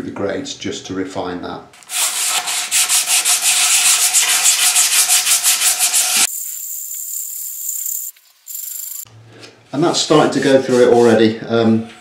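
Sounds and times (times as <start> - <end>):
sandpaper rasping on wood: 1.9 - 6.8
steady hiss: 6.0 - 9.1.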